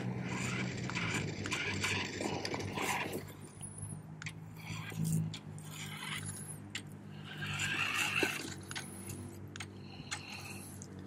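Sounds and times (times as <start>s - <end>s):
scattered clicks: 0.0s - 7.0s
toy truck motor whirring: 0.0s - 10.9s.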